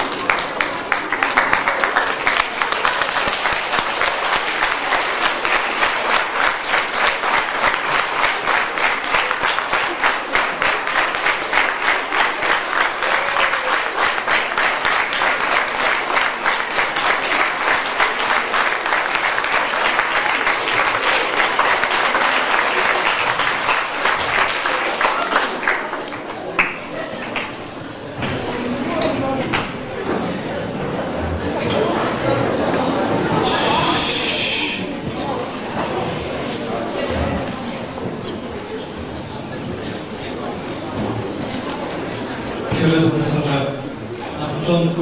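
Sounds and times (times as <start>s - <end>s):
large audience applauding: 0.0s - 27.6s, 32.0s - 35.6s.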